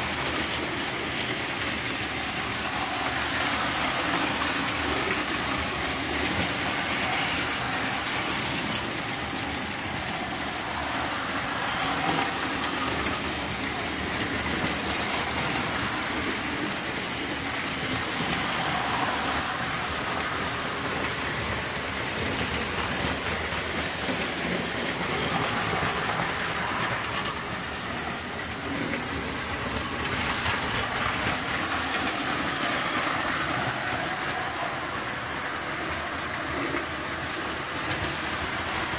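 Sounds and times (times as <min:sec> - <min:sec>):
toy trains running on metal track: 0:00.0 - 0:38.9.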